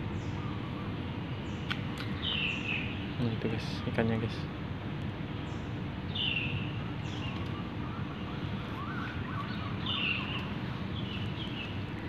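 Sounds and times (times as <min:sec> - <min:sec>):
low outdoor rumble: 0:00.0 - 0:12.0
bird chirps: 0:00.1 - 0:03.2, 0:05.4 - 0:11.8.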